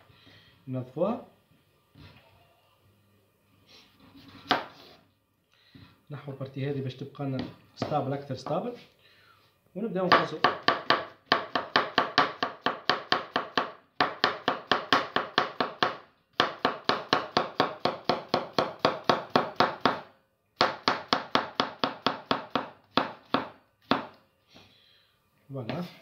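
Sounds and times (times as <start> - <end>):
knife chopping on wooden board: 4.3 - 5.0, 7.4 - 8.0, 10.1 - 24.1.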